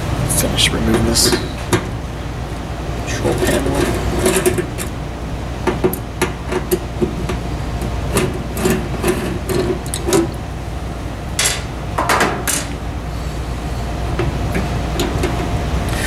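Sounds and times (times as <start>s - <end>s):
metal panel scraping and rattling: 3.1s - 5.0s, 8.1s - 10.4s.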